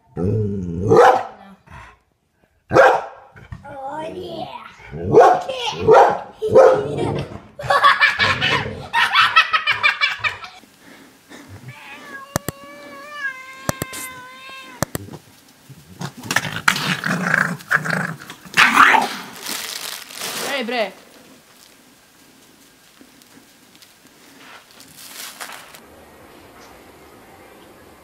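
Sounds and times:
cat yowling: 0:11.6 - 0:15.0
sharp clicks: 0:12.3 - 0:12.6, 0:13.6 - 0:14.2, 0:14.8 - 0:15.6.

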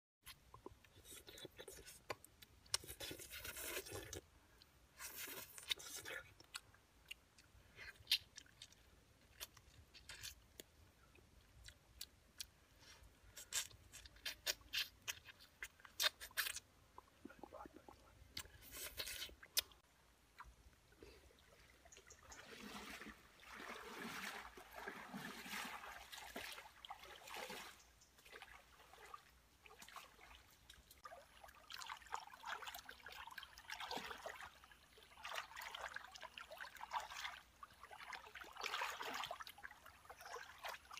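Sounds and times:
person crunching and chewing: 0:00.6 - 0:04.2, 0:05.0 - 0:10.7, 0:13.3 - 0:16.6, 0:18.3 - 0:19.8.

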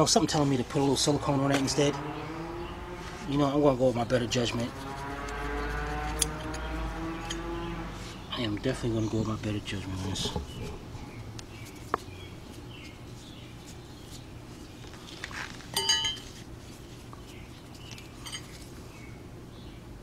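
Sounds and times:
metallic clink: 0:15.8 - 0:16.2, 0:18.2 - 0:18.6.

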